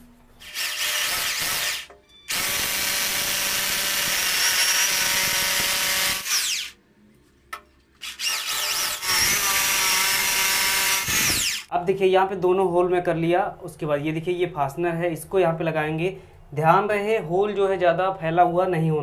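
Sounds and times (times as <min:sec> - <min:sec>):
electric drill boring into tile: 0:00.4 - 0:06.7, 0:08.0 - 0:11.7.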